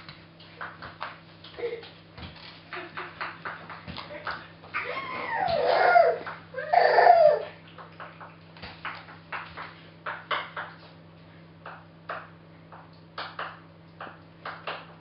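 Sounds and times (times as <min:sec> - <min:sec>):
hands slapping laminate floor: 0:00.0 - 0:04.8, 0:07.7 - 0:11.0, 0:11.6 - 0:15.0
baby whining: 0:04.8 - 0:07.6.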